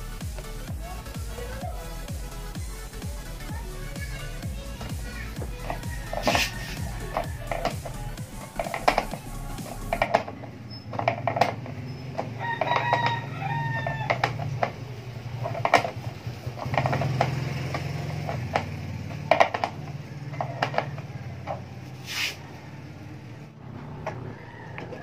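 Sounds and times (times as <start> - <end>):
rooster crowing: 5.6 - 10.0, 12.0 - 14.5, 20.0 - 25.0
screwdriver clicks and knocks: 8.6 - 9.2.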